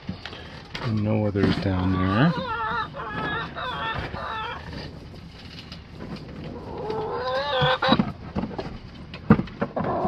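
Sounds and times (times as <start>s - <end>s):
hen calling: 1.8s - 4.8s
plastic crates knocking: 7.6s - 10.0s.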